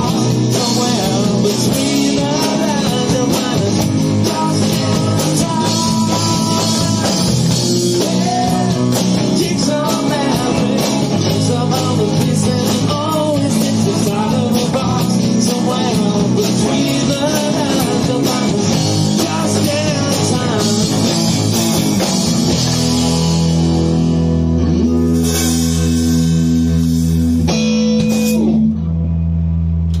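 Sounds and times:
person singing: 0:00.0 - 0:21.3
bass guitar: 0:00.0 - 0:30.0
drum kit: 0:00.0 - 0:30.0
electric guitar: 0:00.0 - 0:30.0.

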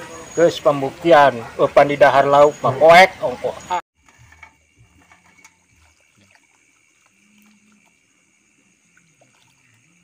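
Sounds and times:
fish splashing at water surface: 0:04.9 - 0:10.0.

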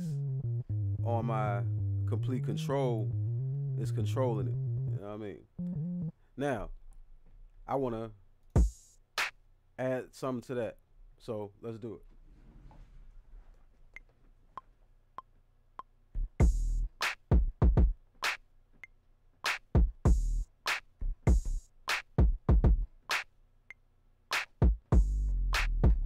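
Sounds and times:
hip-hop drum-machine beat: 0:00.0 - 0:05.0, 0:05.6 - 0:06.1, 0:08.6 - 0:09.4, 0:15.8 - 0:18.4, 0:19.4 - 0:23.3, 0:24.3 - 0:26.0
synth notes: 0:00.0 - 0:06.1.

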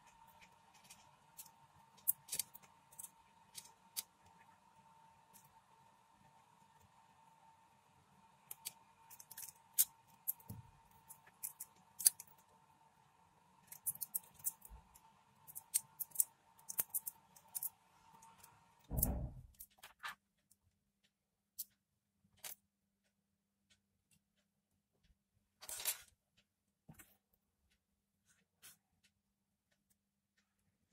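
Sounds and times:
wires clicking and crinkling: 0:00.0 - 0:05.8, 0:08.4 - 0:12.6, 0:13.6 - 0:20.6, 0:21.5 - 0:22.7, 0:25.6 - 0:27.4
faint steady hum: 0:00.0 - 0:19.6
thump: 0:18.9 - 0:19.5.

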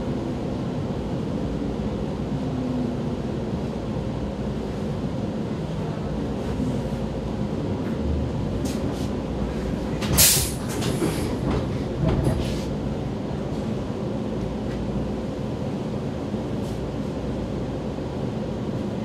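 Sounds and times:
train equipment hum: 0:00.0 - 0:19.0.

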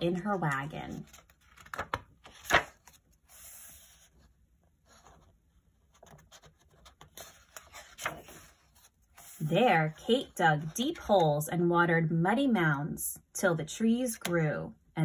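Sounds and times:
book pages turning: 0:00.1 - 0:11.2.

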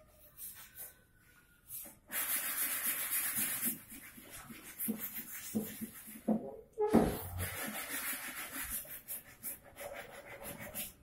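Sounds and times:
sandpaper rasping on wood: 0:02.1 - 0:06.2, 0:07.4 - 0:11.0.

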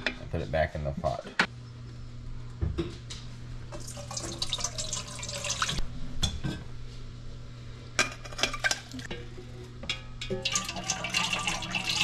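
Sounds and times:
liquid fat pouring and trickling: 0:03.7 - 0:05.8, 0:10.3 - 0:12.0.

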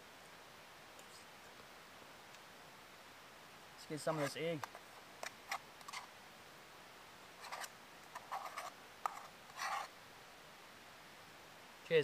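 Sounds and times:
utensil scraping metal mug: 0:07.4 - 0:09.9.

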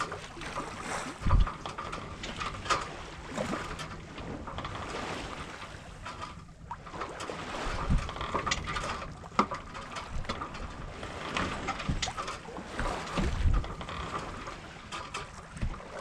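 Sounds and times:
wind on microphone: 0:00.0 - 0:06.0, 0:06.6 - 0:16.0
water lapping against hull: 0:00.0 - 0:16.0
small knocks and clicks: 0:07.2 - 0:10.7, 0:11.3 - 0:15.8.

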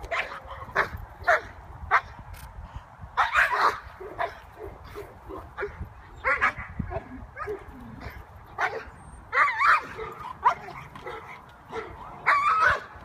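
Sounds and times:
dog barking: 0:03.2 - 0:06.7
dog yelping: 0:08.6 - 0:12.9.

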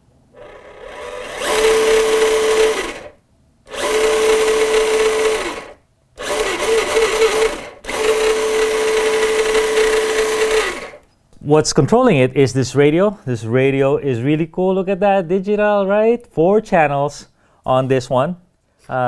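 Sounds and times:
electric motor whine with gear noise: 0:00.4 - 0:11.0.

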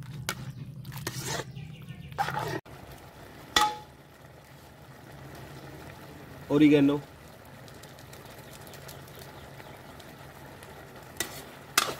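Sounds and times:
ladle scraping in iron pan: 0:00.0 - 0:01.6, 0:02.2 - 0:02.6, 0:11.2 - 0:11.9.

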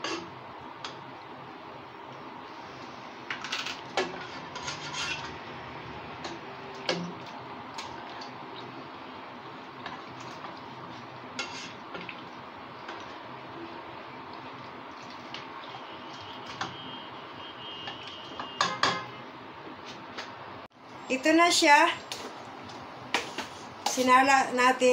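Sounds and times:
ladle scraping a pot: 0:03.4 - 0:05.6, 0:09.8 - 0:12.2.

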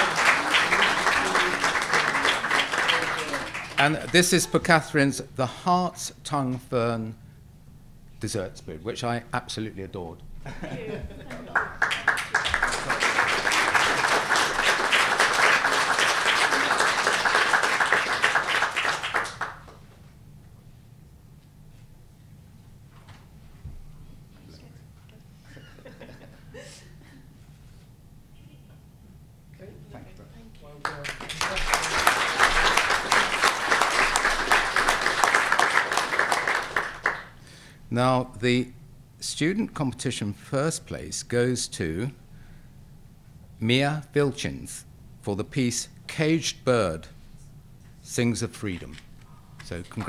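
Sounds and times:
audience applauding: 0:00.0 - 0:04.6, 0:11.3 - 0:19.9, 0:30.8 - 0:37.4.

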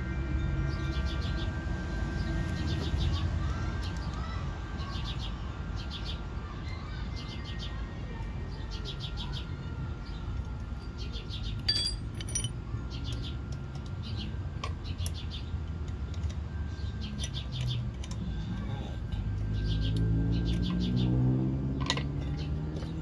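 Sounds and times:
wrench clinking against steel: 0:11.6 - 0:12.6
small birds chirping: 0:16.7 - 0:23.0.

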